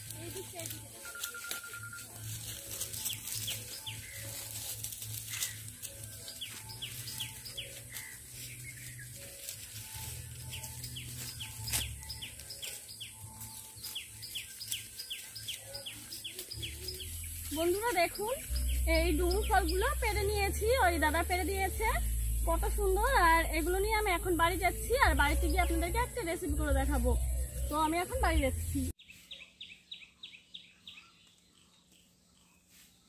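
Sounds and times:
bird calling high notes: 0.6s - 2.3s.

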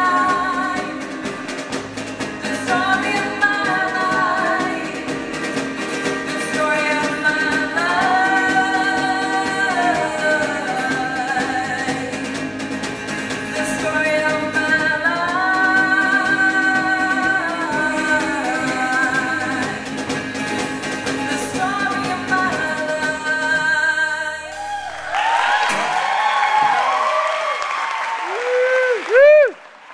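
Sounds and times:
woman singing: 0.0s - 24.7s
acoustic guitar: 0.0s - 27.1s
audience applause: 24.6s - 29.9s.

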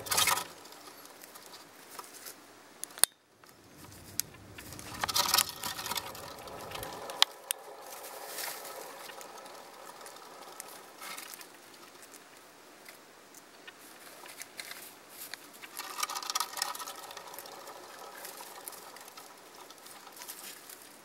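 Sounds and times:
wooden running wheel rumbling: 0.0s - 1.5s, 3.4s - 12.4s, 15.5s - 21.0s.

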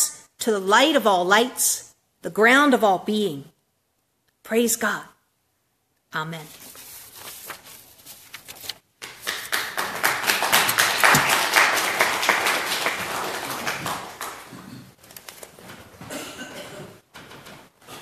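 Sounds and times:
congregation applauding: 9.0s - 14.8s.

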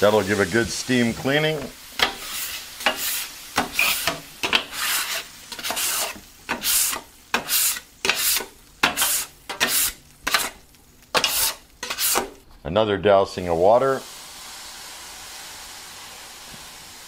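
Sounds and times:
scraper scraping hot griddle: 2.0s - 12.4s.

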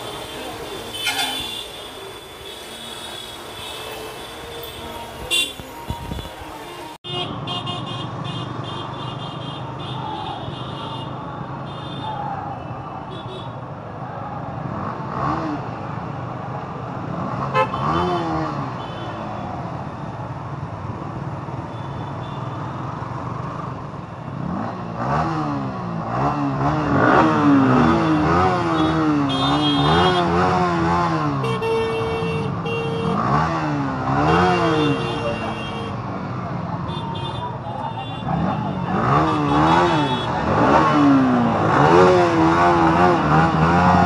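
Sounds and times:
horn tooting: 0.0s - 12.0s, 27.8s - 36.0s, 36.9s - 41.1s
motorcycle engines and road noise: 0.0s - 44.0s.

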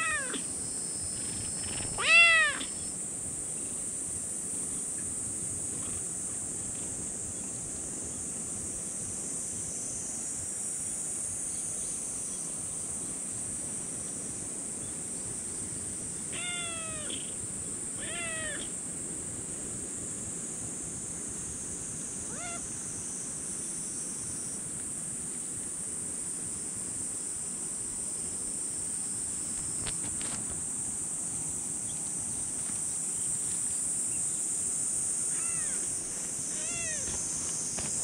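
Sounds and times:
kitten meowing: 0.0s - 0.4s, 1.8s - 2.8s, 16.3s - 17.3s, 18.0s - 18.7s, 22.3s - 22.6s, 35.3s - 35.8s, 36.6s - 37.1s
steady high-pitched hiss: 0.0s - 38.0s.

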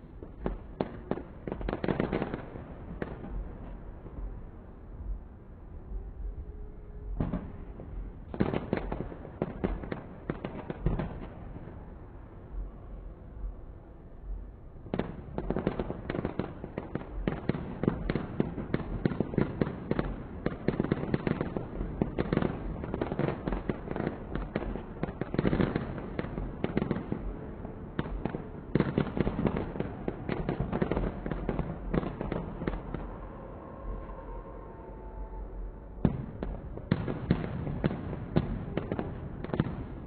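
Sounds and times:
fireworks bangs and crackles: 0.0s - 6.4s, 7.0s - 34.2s, 35.5s - 40.0s.

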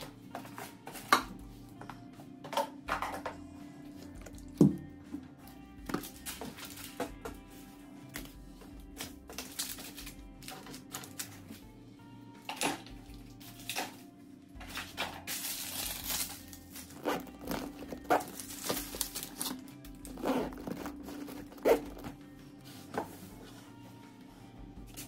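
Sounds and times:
soft background music: 0.0s - 25.0s
paper packaging rustling: 9.0s - 11.6s, 14.6s - 23.6s.

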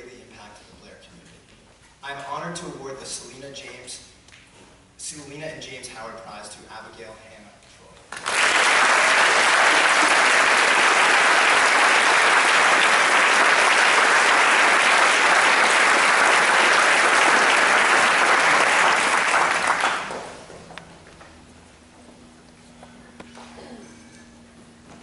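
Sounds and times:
audience applauding: 8.1s - 20.4s.

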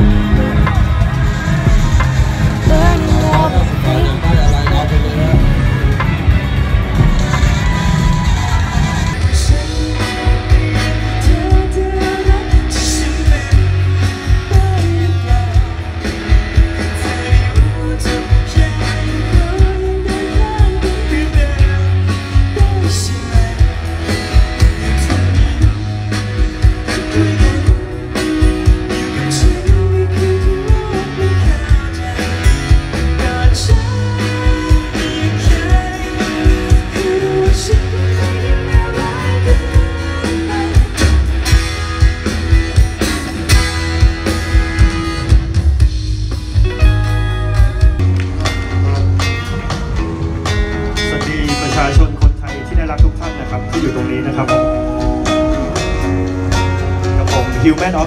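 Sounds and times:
acoustic guitar: 0.0s - 58.0s
drums: 0.0s - 58.0s
heavy pulsing bass: 0.0s - 58.0s
man singing: 1.8s - 5.8s, 8.8s - 42.0s.

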